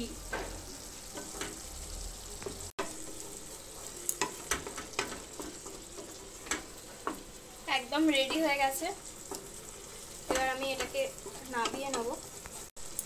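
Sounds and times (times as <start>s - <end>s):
food sizzling in oil: 0.0s - 13.0s
spatula scraping a wok: 0.4s - 12.7s
spatula tapping on pan: 4.1s - 7.3s, 10.3s - 12.2s.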